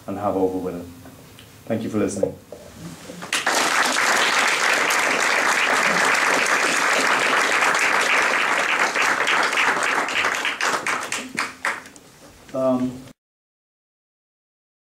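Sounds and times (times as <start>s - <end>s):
audience applauding: 3.3s - 11.9s.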